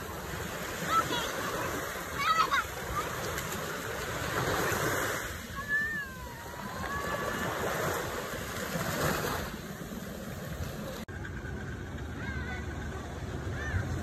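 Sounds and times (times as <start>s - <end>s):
small waves breaking on shore: 0.0s - 11.1s.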